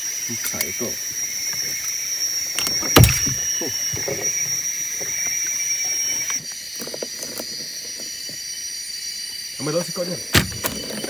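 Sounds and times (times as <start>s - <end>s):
insects droning: 0.0s - 11.0s
thump: 2.6s - 4.2s, 10.3s - 10.8s.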